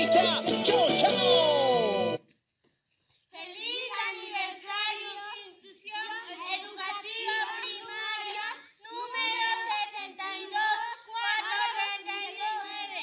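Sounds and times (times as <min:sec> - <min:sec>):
children singing in unison: 0:05.9 - 0:13.0.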